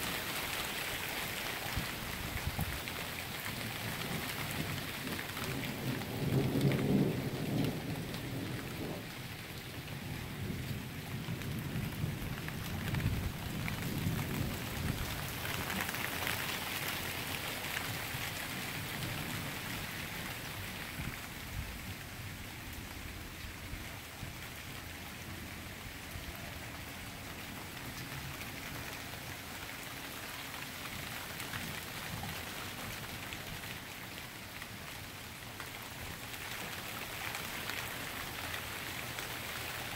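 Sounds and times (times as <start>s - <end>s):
rain falling on pavement: 0.0s - 39.9s
thunder rumbling: 4.5s - 15.9s.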